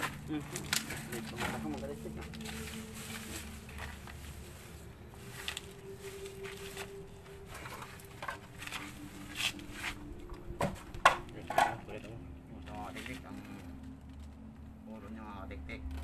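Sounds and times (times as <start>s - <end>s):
plastic bag rustling: 0.0s - 11.9s.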